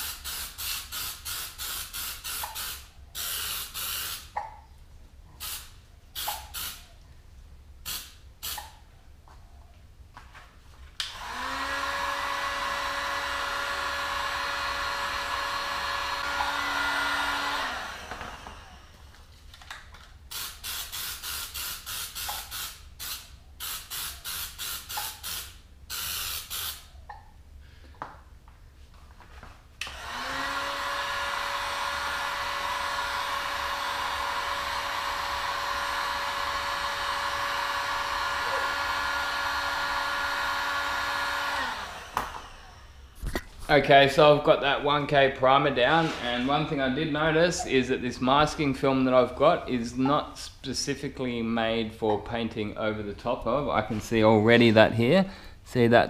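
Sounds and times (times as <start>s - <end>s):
heat gun fan whine: 0.0s - 4.3s, 5.4s - 6.9s, 11.0s - 26.9s, 29.8s - 54.4s
spray can hissing: 0.0s - 4.3s, 5.4s - 6.9s, 7.8s - 8.8s, 20.3s - 26.9s.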